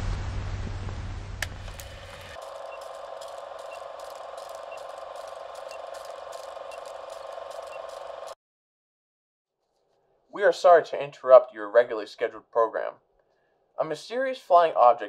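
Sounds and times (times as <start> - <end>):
film projector running: 1.4 - 8.4
television static hiss with hum: 1.6 - 8.4.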